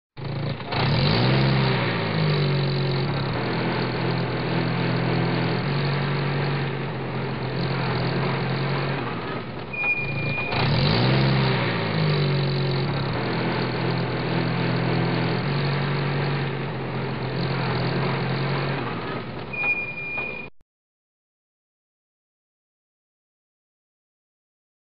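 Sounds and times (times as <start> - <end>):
truck engine revving: 0.2 - 20.5
short high tone: 9.7 - 10.8, 19.5 - 20.5.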